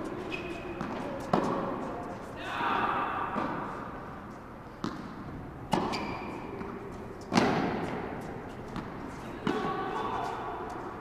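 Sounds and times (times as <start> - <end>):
tennis ball bouncing on hard court: 0.0 - 1.9, 3.3 - 4.0, 4.8 - 10.8
tennis ball hit by rackets: 0.7 - 1.9, 3.3 - 4.0, 4.8 - 9.8.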